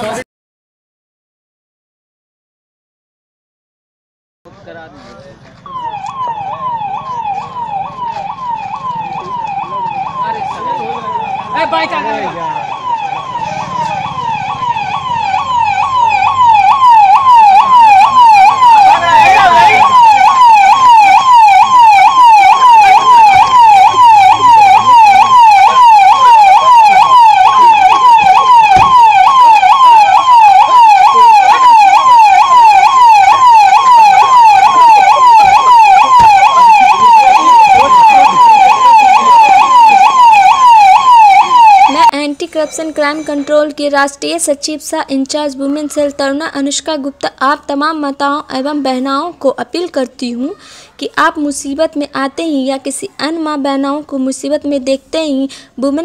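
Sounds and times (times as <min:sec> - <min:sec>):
police siren wailing: 0:05.6 - 0:42.2.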